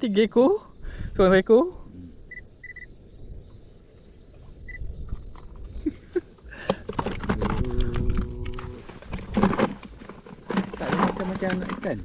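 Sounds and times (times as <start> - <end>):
wind rumble on microphone: 0.7 - 10.0
grip and line clicks and rattles: 5.0 - 12.0.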